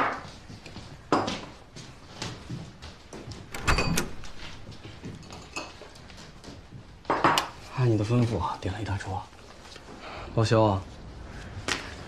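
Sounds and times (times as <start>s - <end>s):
dishes clattering: 5.0s - 6.1s.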